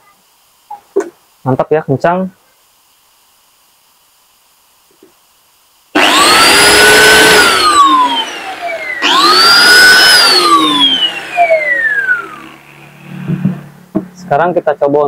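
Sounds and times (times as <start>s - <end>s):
angle grinder blower whine: 6.0s - 13.8s.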